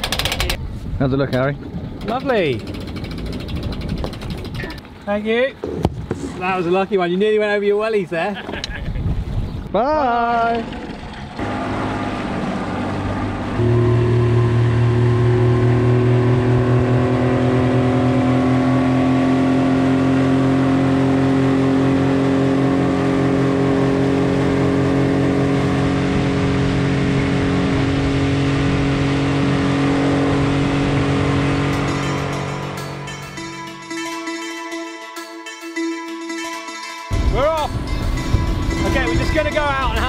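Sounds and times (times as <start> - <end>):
outboard motor running: 1.7 - 6.1, 10.2 - 34.2.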